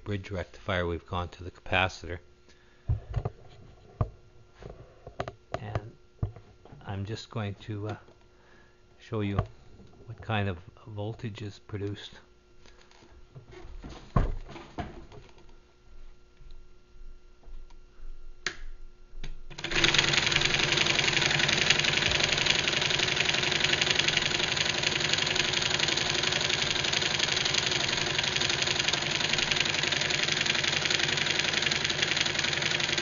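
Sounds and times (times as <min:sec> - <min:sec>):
motor rattling steadily: 0:19.5 - 0:33.0.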